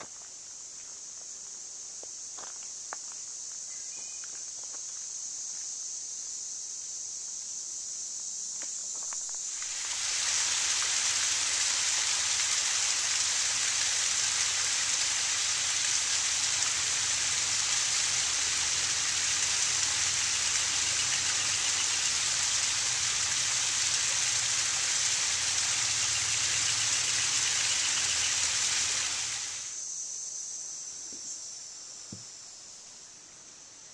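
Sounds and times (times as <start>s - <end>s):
small waterfall splashing: 9.3s - 29.8s.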